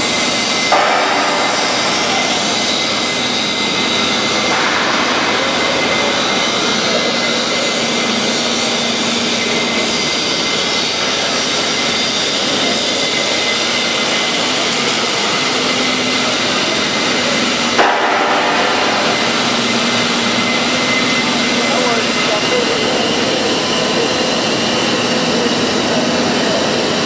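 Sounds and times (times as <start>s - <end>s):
industrial machinery hiss: 0.0s - 27.0s
sharp knock: 0.7s - 2.2s, 17.8s - 19.3s.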